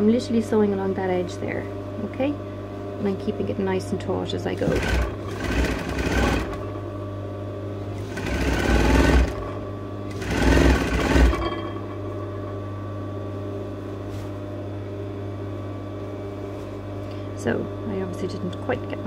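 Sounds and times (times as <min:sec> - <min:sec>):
steady hum: 0:00.0 - 0:19.0
sewing machine stitching: 0:04.6 - 0:06.6, 0:08.0 - 0:11.6.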